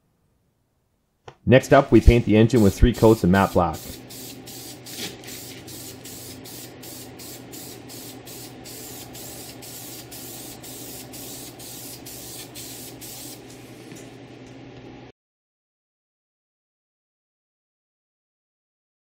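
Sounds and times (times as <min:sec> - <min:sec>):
spray-paint can hissing: 0:02.1 - 0:13.7.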